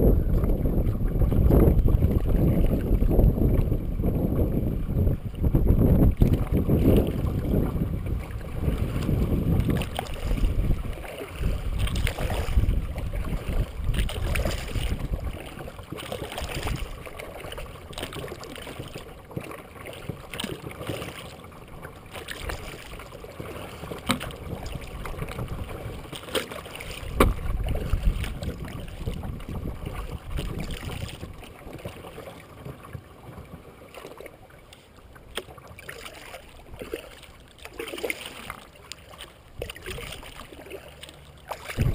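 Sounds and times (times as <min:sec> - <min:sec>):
wind rumbling on microphone: 0:00.0 - 0:19.1, 0:22.2 - 0:26.2, 0:26.8 - 0:32.1, 0:39.5 - 0:40.6, 0:41.4 - 0:41.9
water swishing along hull: 0:00.0 - 0:41.9
paddle strokes splashing: 0:00.2 - 0:41.9.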